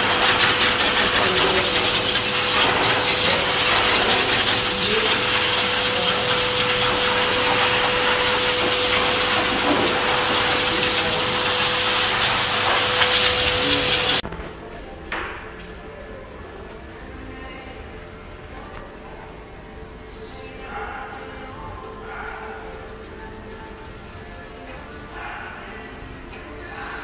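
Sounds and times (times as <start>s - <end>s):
blower dryer whining: 0.0s - 14.3s.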